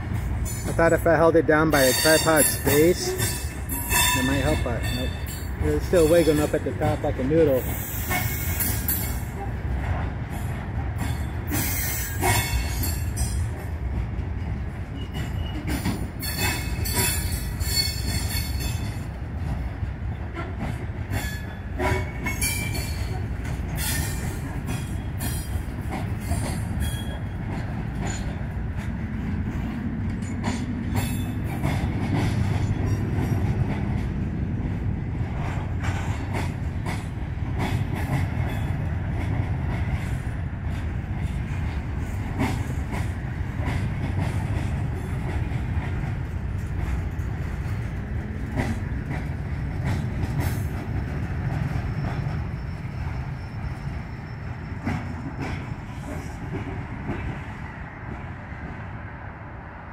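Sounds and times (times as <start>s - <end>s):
wheels clanking over rail joints: 0.0s - 58.4s
freight train rumbling past: 0.0s - 59.9s
wheel squeals: 14.9s - 18.8s, 51.8s - 55.1s.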